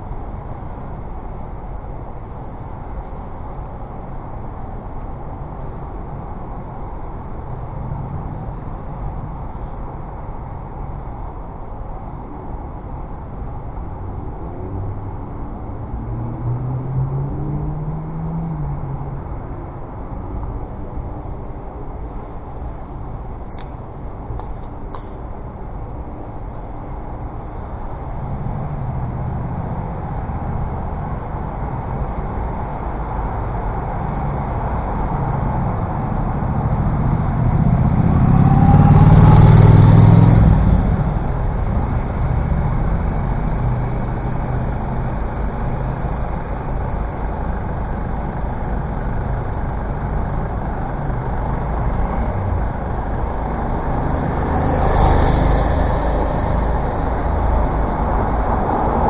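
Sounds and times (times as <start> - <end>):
road traffic roar: 0.0 - 59.0
large vehicle passing close: 27.3 - 59.0.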